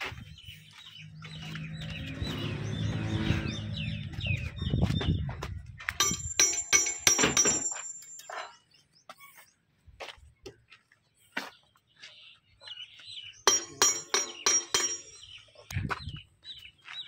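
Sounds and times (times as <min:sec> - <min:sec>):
small birds chirping: 0:00.0 - 0:17.0
hand tool clinking on metal: 0:06.0 - 0:08.6, 0:13.5 - 0:15.3.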